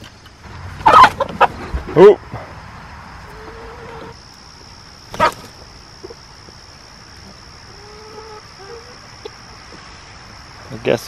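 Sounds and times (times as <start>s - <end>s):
chicken squawk: 0.8s - 1.7s, 3.2s - 4.2s, 5.1s - 6.2s, 7.2s - 9.5s
chickens calling softly: 0.8s - 2.5s, 3.2s - 4.2s, 5.1s - 9.9s.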